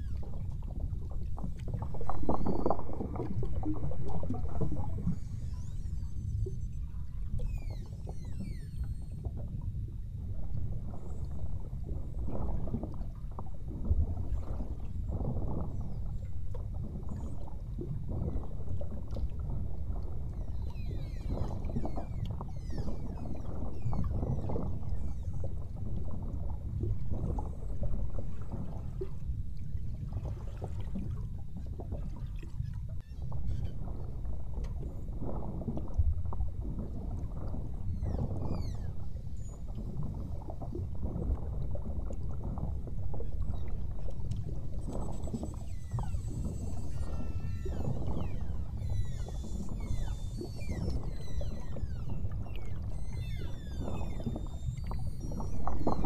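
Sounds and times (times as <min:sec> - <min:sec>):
whales chirping and whistling: 0:00.0 - 0:00.9, 0:01.9 - 0:09.5, 0:14.2 - 0:17.6, 0:19.7 - 0:26.2, 0:32.5 - 0:35.2, 0:37.4 - 0:40.5, 0:43.0 - 0:56.0
low rumble of moving water: 0:00.0 - 0:56.0.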